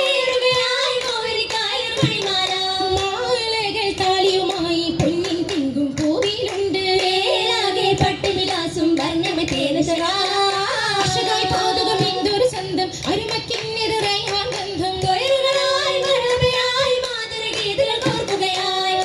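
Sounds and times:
sharp hand claps: 0.4s - 19.0s
high voices singing in chorus: 9.5s - 13.2s.

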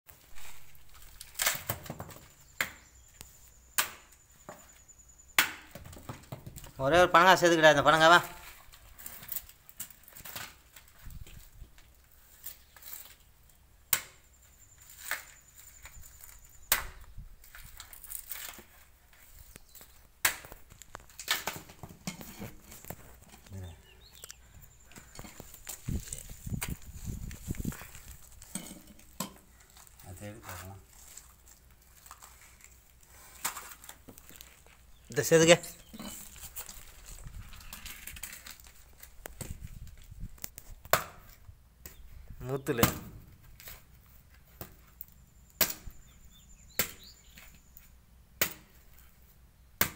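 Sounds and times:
machete chopping fruit: 3.8s - 4.1s, 5.4s - 5.9s, 13.9s - 14.2s, 16.7s - 17.0s, 20.2s - 20.6s, 40.8s - 42.0s, 42.7s - 43.2s, 45.6s - 46.0s, 46.7s - 47.4s, 48.4s - 48.8s
knife chopping fruit husk: 48.4s - 48.8s.

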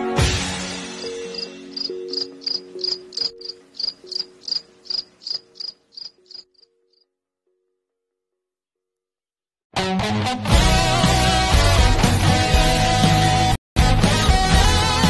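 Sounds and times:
insect chirps: 1.0s - 7.0s.

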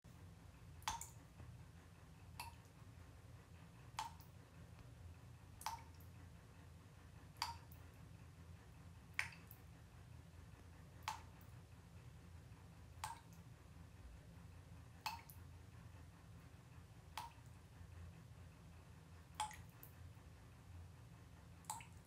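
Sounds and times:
faint low hum: 0.1s - 22.0s
water drops plinking into bathtub: 0.8s - 1.2s, 4.0s - 4.3s, 5.6s - 6.0s, 7.4s - 7.8s, 9.2s - 9.6s, 13.0s - 13.3s, 15.1s - 15.4s, 17.2s - 17.4s, 19.4s - 19.7s, 21.6s - 22.0s.

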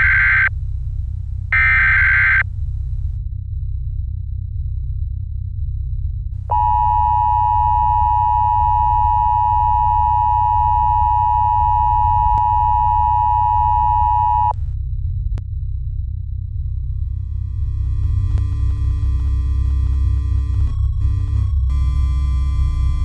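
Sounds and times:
loud steady electronic beep: 0.0s - 0.5s, 1.6s - 2.4s, 6.5s - 14.6s
low drone: 0.0s - 23.0s.

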